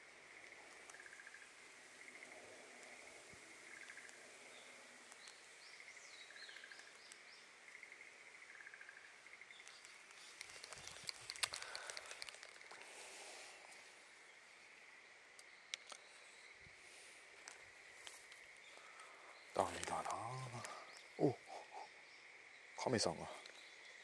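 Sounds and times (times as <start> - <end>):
bird chirping: 0.3 - 24.0
fishing rod clicks and rustling: 9.6 - 13.8, 15.3 - 16.3, 17.2 - 21.1.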